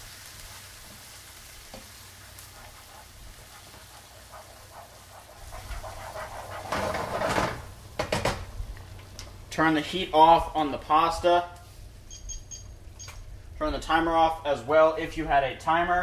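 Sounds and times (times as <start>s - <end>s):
soft sizzle: 0.0s - 16.0s
spoon stirring thick puree: 1.8s - 7.3s.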